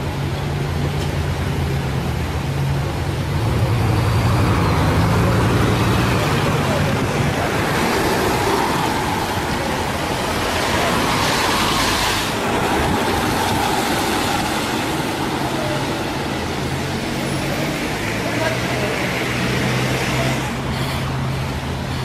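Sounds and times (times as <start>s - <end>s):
cars moving slowly: 0.0s - 22.0s
car passing: 3.3s - 21.4s.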